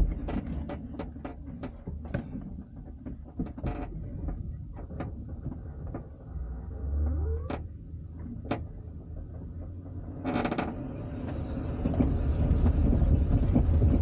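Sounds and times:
cockpit clicks and creaks: 0:00.0 - 0:06.4, 0:07.0 - 0:10.8
low steady rumble: 0:00.0 - 0:14.0.

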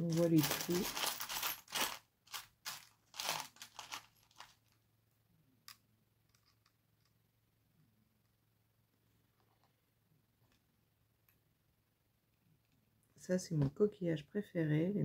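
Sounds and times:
shells scraping and rustling: 0:00.0 - 0:04.8.

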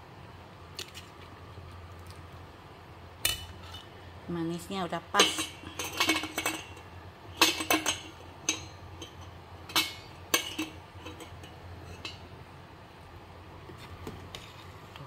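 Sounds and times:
metal ladle clinking against pot: 0:05.2 - 0:12.3.

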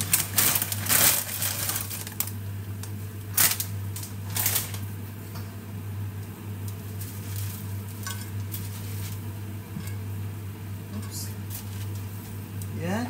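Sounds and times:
plastic packet crinkling: 0:00.0 - 0:02.4, 0:03.3 - 0:04.8
handling noodles with tongs: 0:06.7 - 0:10.1.

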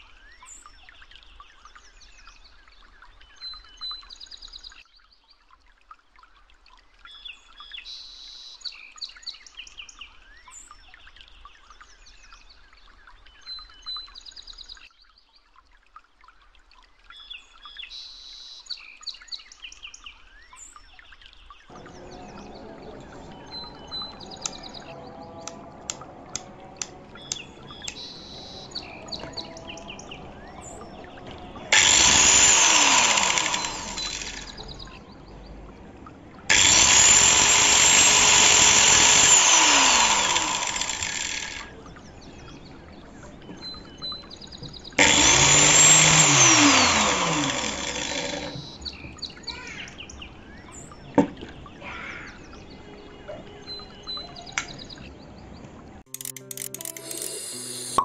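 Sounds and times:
angle grinder running: 0:21.7 - 0:34.8, 0:36.5 - 0:41.7, 0:45.0 - 0:48.6
grinder motor coasting down: 0:21.7 - 0:35.0, 0:36.5 - 0:41.8, 0:45.0 - 0:48.8, 0:56.1 - 0:58.0.

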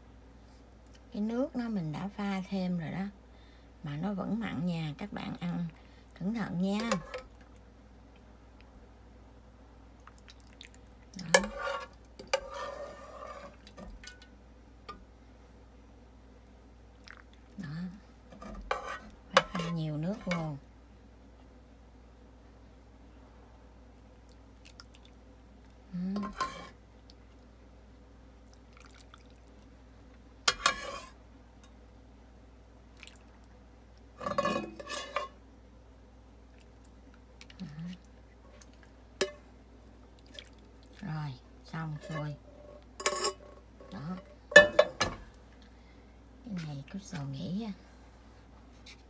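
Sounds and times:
soft liquid and clattering: 0:06.7 - 0:08.7, 0:10.0 - 0:15.1, 0:28.4 - 0:31.8, 0:34.1 - 0:35.4, 0:40.1 - 0:45.8
soup pouring and dripping: 0:28.5 - 0:29.7
metal ladle clinking: 0:43.0 - 0:43.5, 0:44.5 - 0:45.2.

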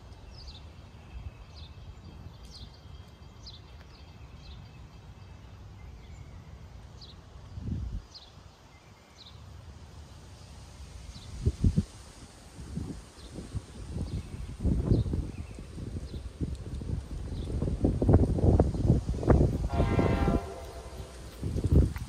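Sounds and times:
low wind rumble: 0:00.0 - 0:22.0.

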